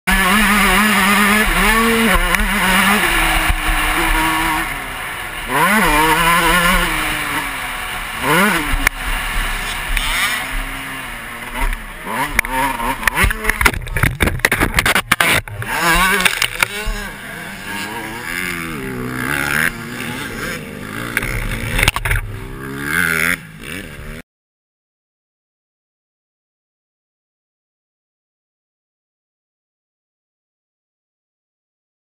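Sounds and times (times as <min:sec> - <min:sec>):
motocross bike engine revving: 0:00.1 - 0:24.2
bike and rider crashing: 0:05.5 - 0:22.5.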